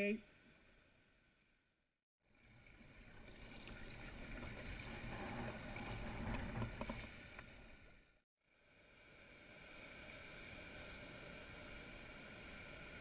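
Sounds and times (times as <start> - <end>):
water swishing against kayak: 2.3 - 8.0.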